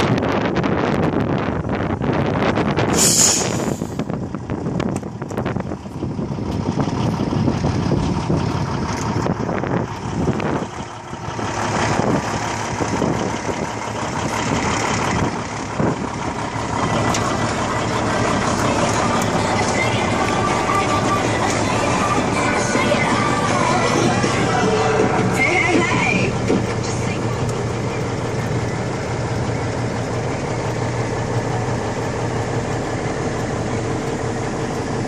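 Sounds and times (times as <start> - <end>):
wind buffeting microphone: 0.0 - 26.8
diesel truck engine idling: 0.0 - 35.0
brief hiss: 3.0 - 3.9.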